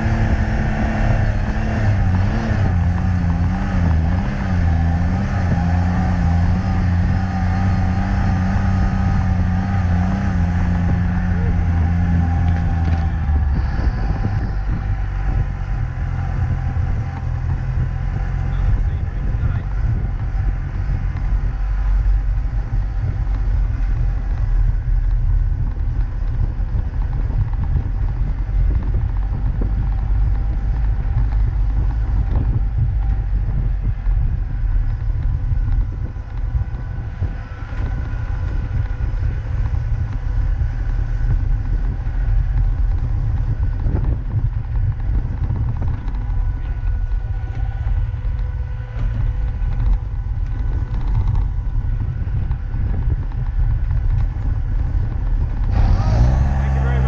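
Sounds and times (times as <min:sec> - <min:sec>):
car engine rumble: 0:00.0 - 0:57.0
wind buffeting microphone: 0:00.0 - 0:57.0.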